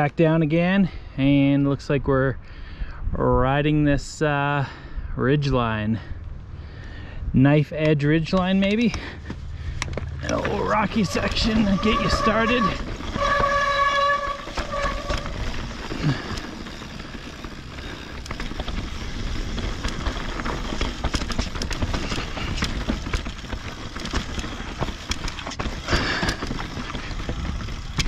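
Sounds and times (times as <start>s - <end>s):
bike clicks and rattles: 7.8s - 28.0s
bike tyres crunching over stones: 8.0s - 28.0s
wind rumbling on microphone: 9.5s - 28.0s.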